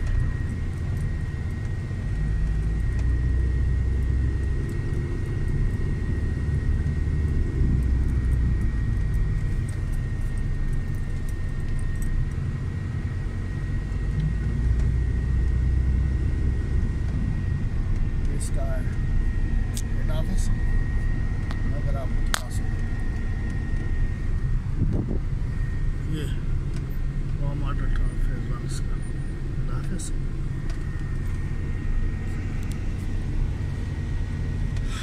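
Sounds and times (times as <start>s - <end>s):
car engine and tyre rumble: 0.0s - 35.0s
thin high whine: 15.0s - 35.0s.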